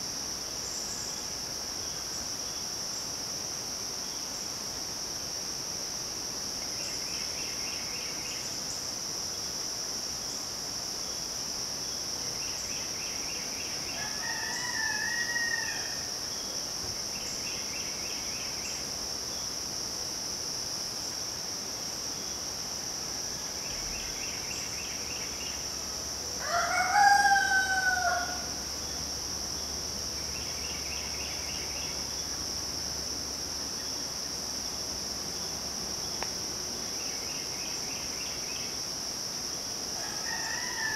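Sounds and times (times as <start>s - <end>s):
insects droning: 0.0s - 40.9s
rooster crowing: 13.9s - 16.1s, 26.4s - 28.6s, 40.0s - 40.9s.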